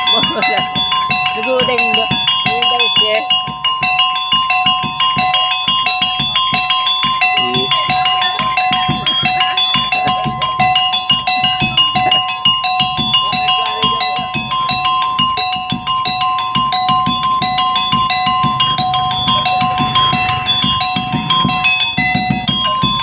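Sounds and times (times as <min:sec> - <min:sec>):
ringing metal percussion: 0:00.0 - 0:23.0
small drum beaten quickly: 0:00.0 - 0:23.0.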